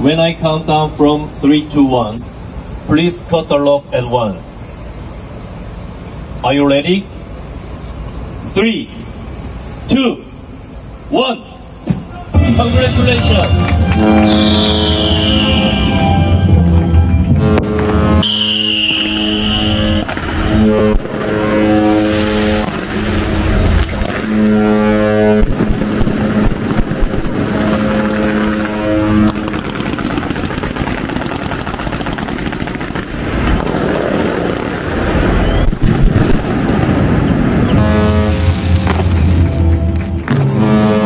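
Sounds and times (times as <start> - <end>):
ship's horn blasts: 12.0 - 29.5, 37.6 - 41.0
fireworks crackling hiss: 18.4 - 31.4.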